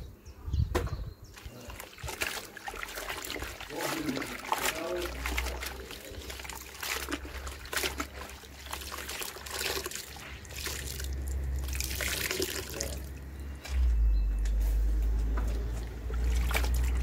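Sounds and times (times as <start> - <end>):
cloth sloshing in soapy water: 1.3 - 13.8, 15.0 - 17.0
water trickling into tub: 1.3 - 14.0, 15.0 - 17.0
low rumble: 13.1 - 17.0.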